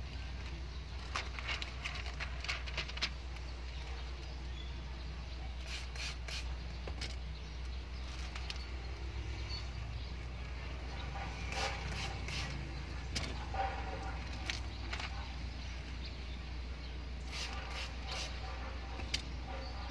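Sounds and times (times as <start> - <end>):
spray bottle squirting: 5.6 - 6.5, 11.5 - 12.6, 17.2 - 18.4.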